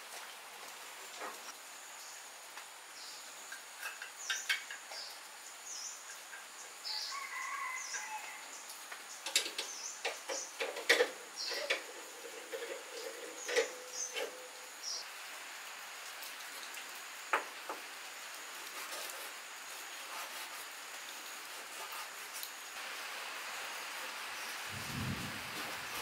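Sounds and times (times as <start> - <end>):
small birds chirping: 3.0 - 15.1.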